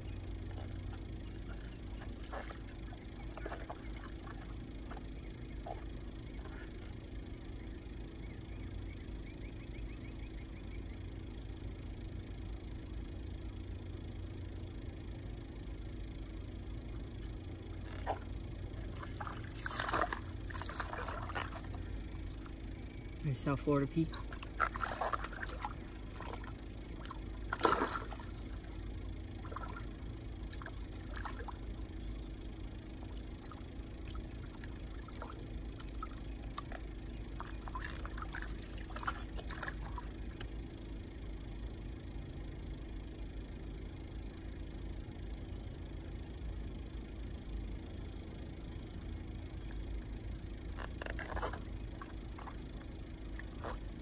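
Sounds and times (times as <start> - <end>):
low background hum: 0.0 - 54.0
water splashing and trickling: 0.5 - 5.0, 18.8 - 31.9, 33.0 - 40.5, 50.8 - 53.9
fish splashing: 17.8 - 23.0, 24.0 - 32.0, 32.9 - 40.5, 50.8 - 54.0.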